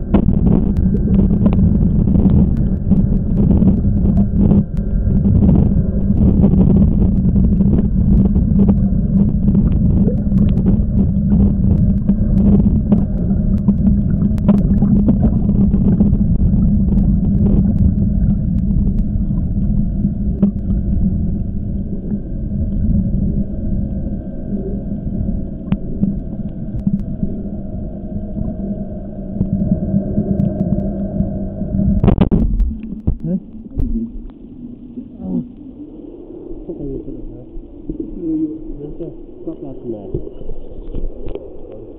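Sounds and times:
underwater low rumble and hum: 0.0s - 41.9s
swimmer's strokes clicks and splashes: 7.1s - 19.1s.

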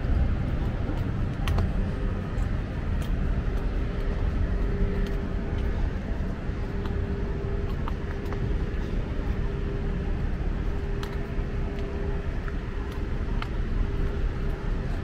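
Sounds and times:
road traffic rumble: 0.0s - 15.0s
steady hum: 0.0s - 15.0s.

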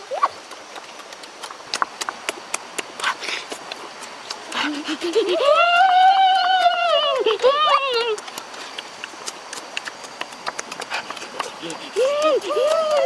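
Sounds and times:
lip clicks: 0.1s - 5.2s, 7.9s - 13.0s
wet mouth smacks while eating: 8.2s - 11.8s.

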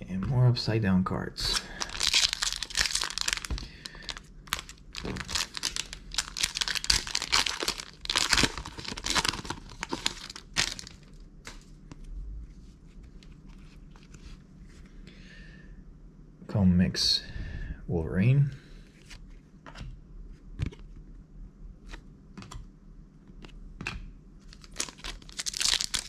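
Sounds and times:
faint rustles and clicks of cards: 1.4s - 15.1s, 18.6s - 21.2s, 21.8s - 26.0s
foil pack tearing and crinkling: 1.5s - 11.0s, 24.5s - 26.0s.

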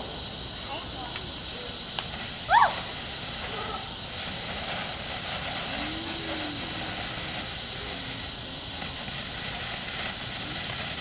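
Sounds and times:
firework fountain hissing: 0.0s - 11.0s.

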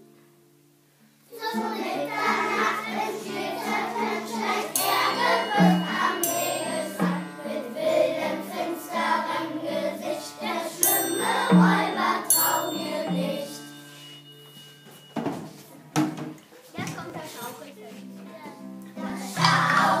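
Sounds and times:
children singing: 1.3s - 14.1s, 18.9s - 20.0s
instrumental accompaniment: 2.3s - 16.4s
triangle struck: 4.7s - 9.3s, 10.8s - 15.5s.

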